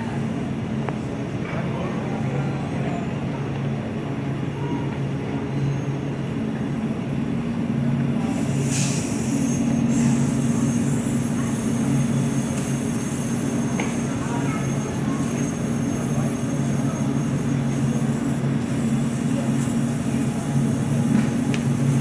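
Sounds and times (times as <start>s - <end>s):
street traffic engine drone: 0.0s - 22.0s
brief hiss: 8.4s - 10.6s.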